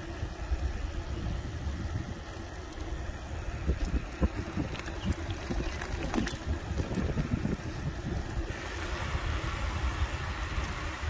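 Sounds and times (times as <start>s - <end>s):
tyres rumbling on asphalt: 0.0s - 11.0s
wind buffeting microphone: 0.0s - 11.0s.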